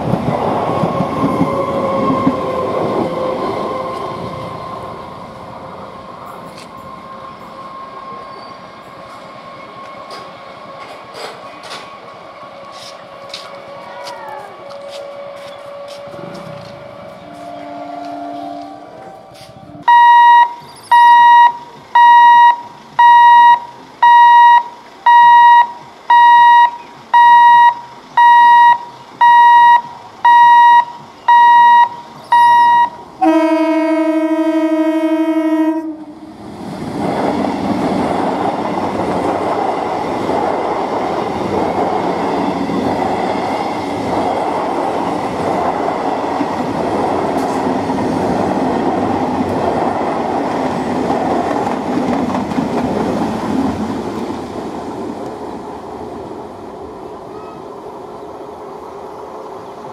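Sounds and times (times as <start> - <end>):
train rumbling and clattering past: 0.0 - 59.9
train horn blast: 17.1 - 19.8, 32.4 - 36.2
level crossing warning beeps: 19.8 - 33.0.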